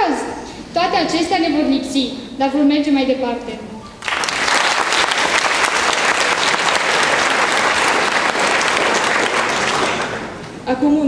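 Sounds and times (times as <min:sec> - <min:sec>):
crowd applauding: 0:04.0 - 0:10.6.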